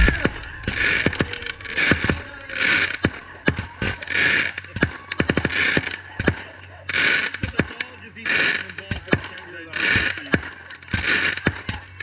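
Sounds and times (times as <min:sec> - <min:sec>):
fireworks hissing bursts: 0:00.0 - 0:04.7
fireworks popping and crackling: 0:00.0 - 0:12.0.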